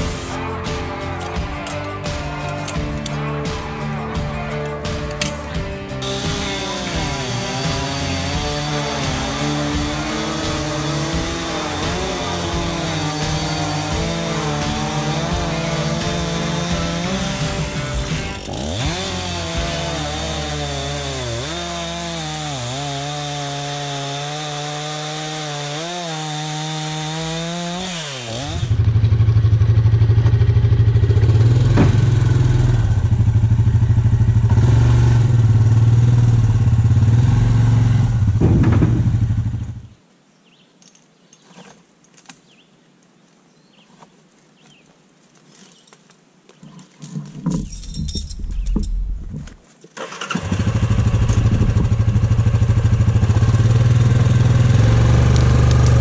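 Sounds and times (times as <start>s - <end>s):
atv engine humming: 0.0s - 22.3s, 28.4s - 39.9s, 50.0s - 56.0s
chainsaw cutting log: 4.5s - 29.1s, 31.2s - 33.2s, 50.0s - 56.0s
clattering: 46.6s - 49.6s.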